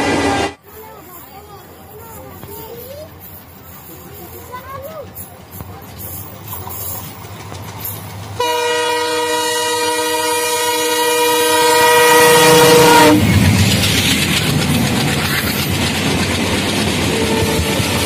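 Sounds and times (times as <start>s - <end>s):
locomotive air horn blast: 0.0s - 0.6s, 8.4s - 13.3s, 17.1s - 18.0s
locomotive and coaches rushing past: 0.0s - 18.0s.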